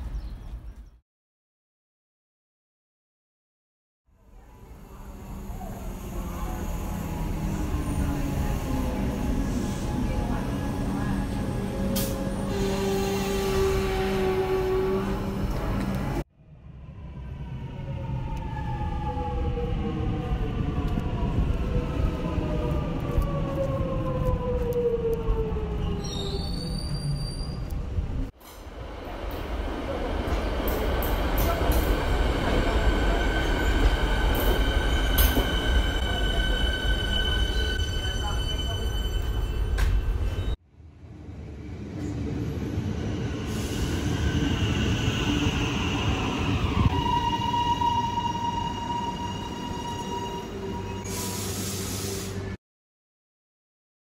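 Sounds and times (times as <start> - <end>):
train wheels rumbling on track: 26.9 - 47.2.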